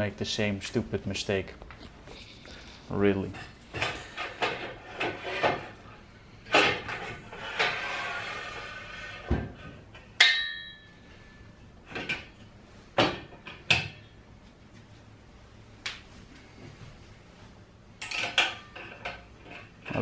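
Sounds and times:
ringing metallic clank: 10.2s - 11.0s.

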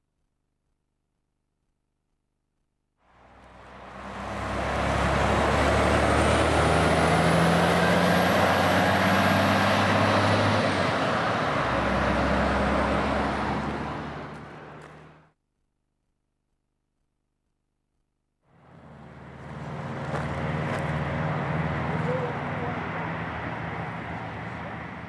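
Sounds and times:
tyre and road noise: 3.0s - 15.3s, 18.5s - 25.0s
bus engine running low: 3.0s - 15.4s, 18.5s - 25.0s.

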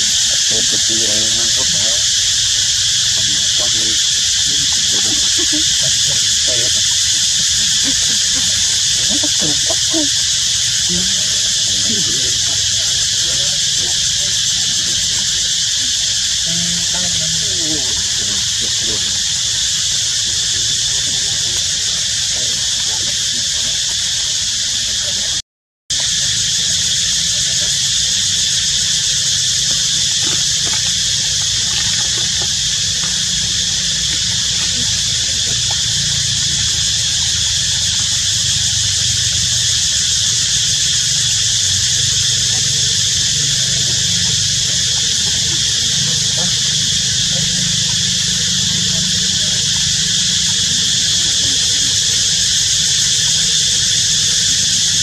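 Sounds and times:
high-pitched insect chorus: 0.0s - 55.0s.

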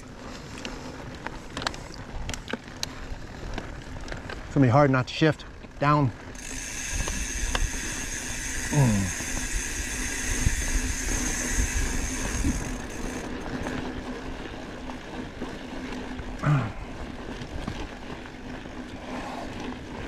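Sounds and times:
bike tyres rumbling over rock: 0.0s - 20.0s
high buzz from bike: 5.8s - 17.9s.

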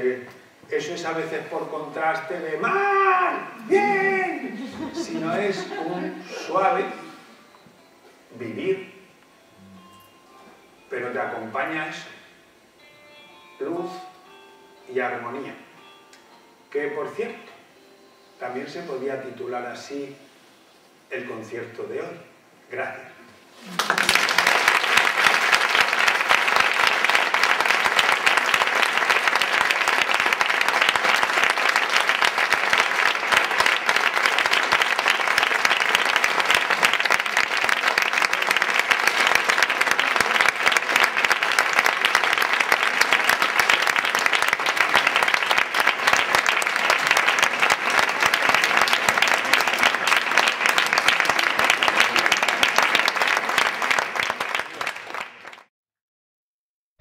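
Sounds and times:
audience applauding: 23.6s - 55.7s.

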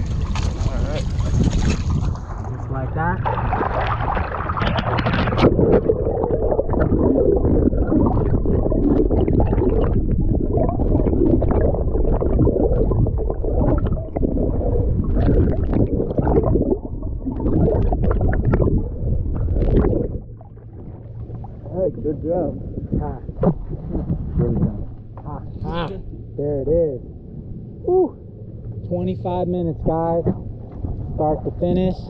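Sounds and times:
muffled underwater gurgling: 0.0s - 27.1s
low rumble: 0.0s - 32.0s.

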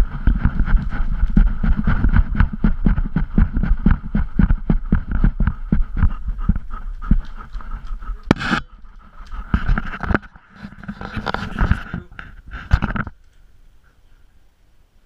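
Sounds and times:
camera handling knocks and rubbing: 9.5s - 13.2s.

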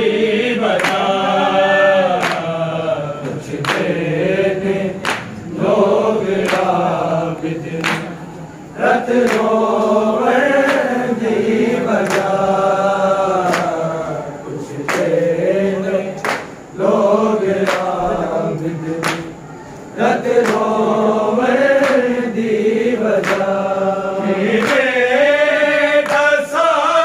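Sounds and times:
men chanting in unison: 0.0s - 27.0s
hands slapping chests: 0.8s - 1.0s, 2.2s - 2.5s, 3.6s - 3.9s, 5.0s - 5.4s, 6.4s - 6.8s, 7.8s - 8.1s, 9.2s - 9.5s, 12.0s - 12.3s, 13.4s - 13.8s, 14.9s - 15.1s, 16.2s - 16.5s, 17.6s - 18.0s, 19.0s - 19.3s, 20.4s - 20.7s, 23.2s - 23.4s, 26.0s - 26.3s.

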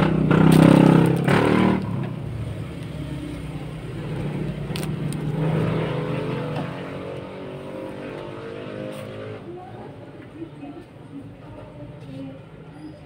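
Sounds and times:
vehicle engine running: 0.0s - 9.7s.

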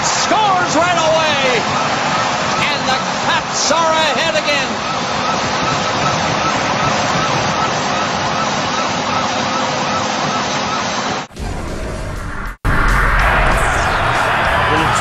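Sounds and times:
crowd roaring: 0.0s - 11.2s, 12.8s - 15.0s
wavering tone: 0.9s - 12.0s.

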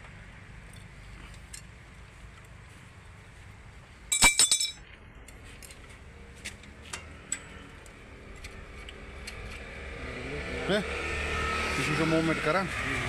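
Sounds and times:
metallic clinks: 4.1s - 4.8s.

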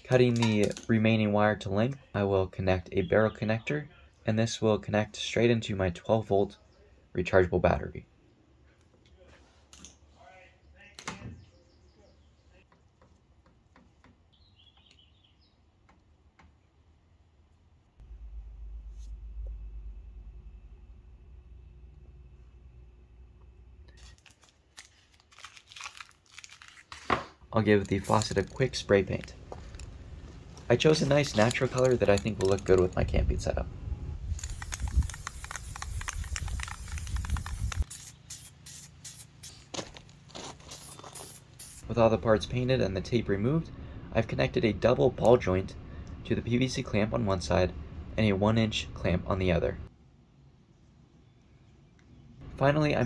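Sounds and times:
handling clicks: 31.0s - 33.0s
spray-paint can hissing: 34.3s - 39.7s, 40.6s - 41.8s.

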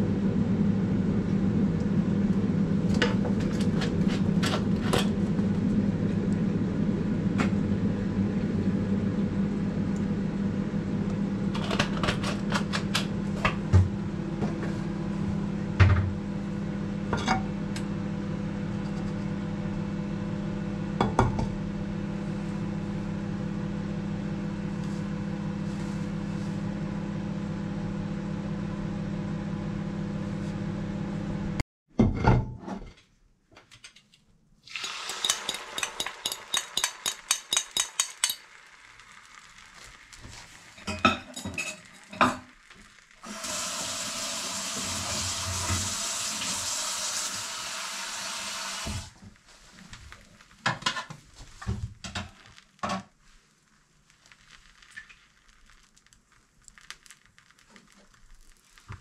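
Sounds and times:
kitchen appliance humming: 0.0s - 31.6s, 34.6s - 49.3s
frying pan knocking on hotplate: 34.7s - 38.5s.

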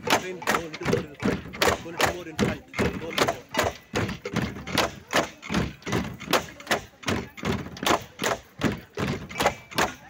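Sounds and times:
bamboo poles knocking together: 0.0s - 10.0s.

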